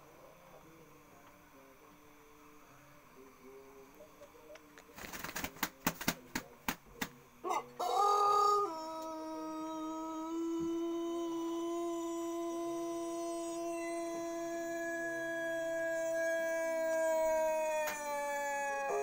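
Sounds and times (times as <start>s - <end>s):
rooster wings flapping: 4.9s - 7.2s
rooster crowing: 7.4s - 19.0s.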